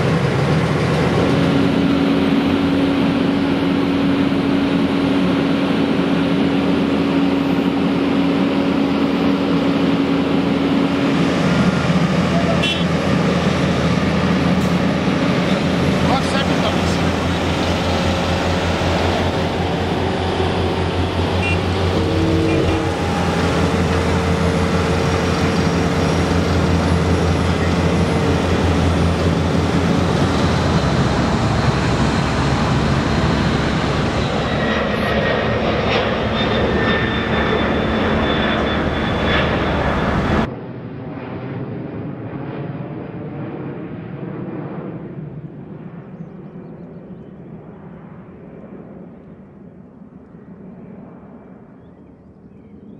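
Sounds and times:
road roller diesel engines humming: 0.0s - 40.5s
jet engines whining: 0.0s - 51.8s.

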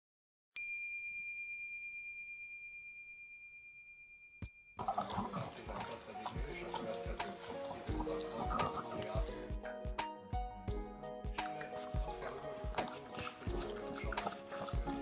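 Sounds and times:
bright metallic chime: 0.6s - 4.8s
music: 4.4s - 15.0s.

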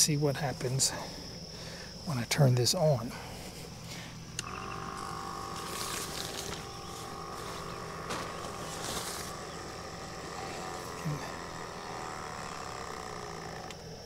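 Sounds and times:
water pump humming: 3.8s - 14.0s.

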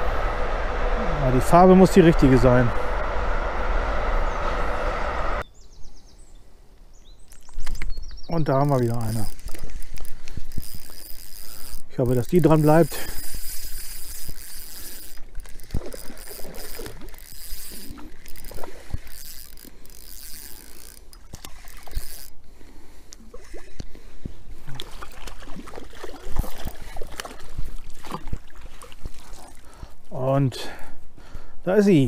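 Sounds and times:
fishing reel clicking: 8.6s - 22.4s
fish splashing: 13.2s - 22.0s, 24.6s - 30.0s.

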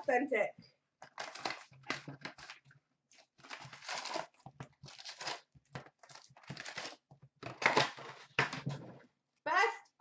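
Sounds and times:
cardboard tearing and crinkling: 1.1s - 8.4s.

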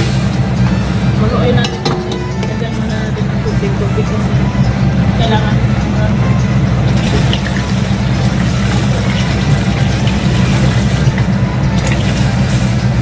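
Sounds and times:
steady low hum: 0.0s - 13.0s
water pouring into a pot: 6.9s - 13.0s.

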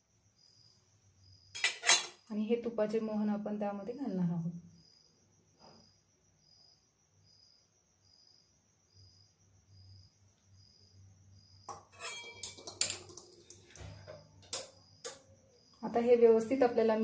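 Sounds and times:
metal kitchenware clinking: 1.5s - 2.2s, 11.7s - 15.2s.

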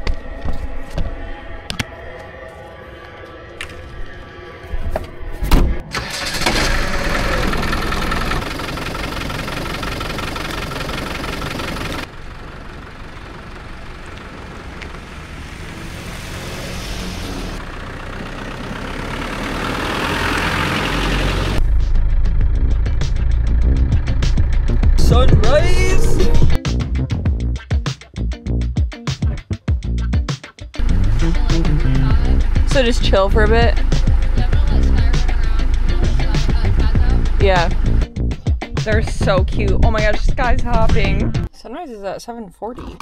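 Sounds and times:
deep engine rumble: 0.0s - 27.6s, 28.2s - 28.8s, 30.8s - 41.5s
engine starting and running: 3.1s - 26.6s, 30.8s - 38.4s.

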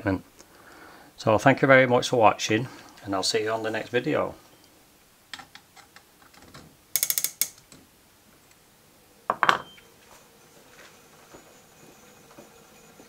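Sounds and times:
clock gear train ratcheting clicks: 7.0s - 7.6s.

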